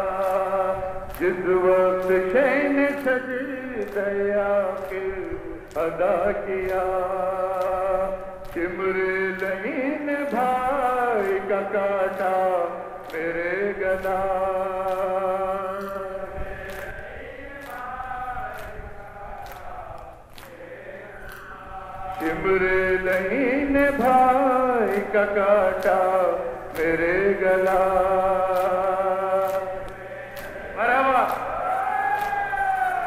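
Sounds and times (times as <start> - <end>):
men chanting a lament: 0.0 - 33.0
lead voice on microphone: 22.2 - 31.5.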